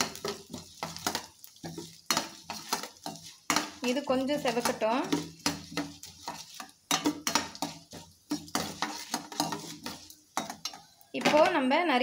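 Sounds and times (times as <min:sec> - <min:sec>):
spoon scraping metal pan: 0:00.0 - 0:11.8.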